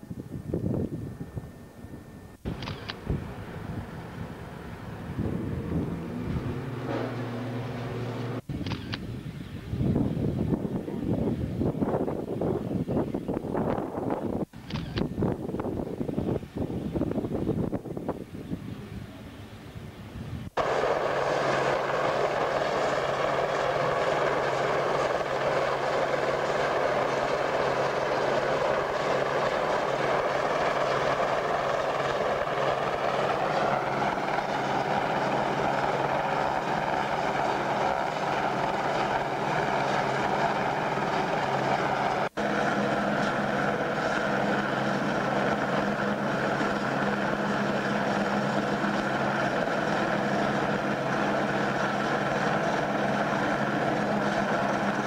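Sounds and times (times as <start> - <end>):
helicopter hovering: 0.0 - 19.8, 20.6 - 55.0.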